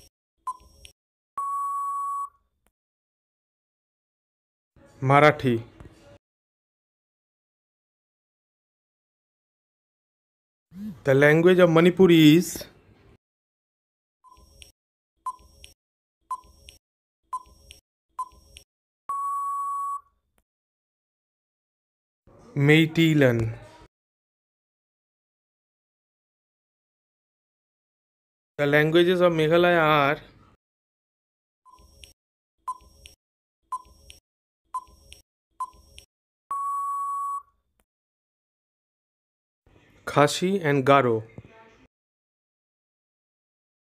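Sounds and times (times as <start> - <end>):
long steady beep: 1.4 - 2.4, 19.1 - 20.1, 36.5 - 37.5
short electronic beeps: 15.3 - 20.1, 34.8 - 37.5.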